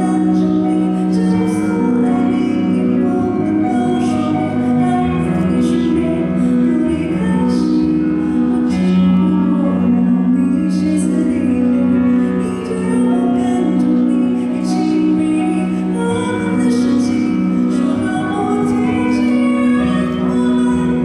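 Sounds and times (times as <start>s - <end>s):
musical accompaniment: 0.0s - 21.0s
woman singing gently: 8.6s - 21.0s.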